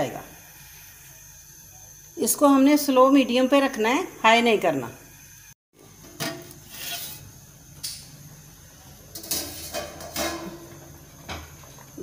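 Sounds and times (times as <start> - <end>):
metal pot and lid clattering: 9.1 - 11.5.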